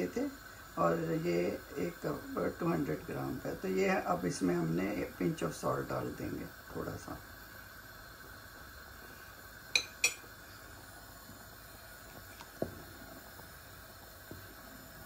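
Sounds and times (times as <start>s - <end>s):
spoon clinking on steel pot: 9.7s - 10.2s.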